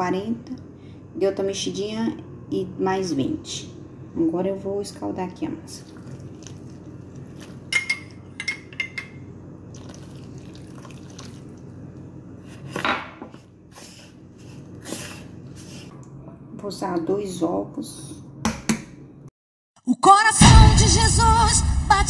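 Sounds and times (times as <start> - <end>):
liquid pouring: 5.7 - 8.0, 9.7 - 12.0
metal spoon clinking on glass: 7.7 - 9.2.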